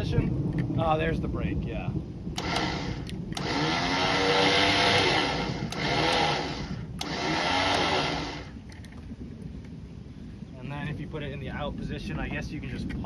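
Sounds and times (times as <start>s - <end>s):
electric winch motor whining: 2.4s - 8.6s.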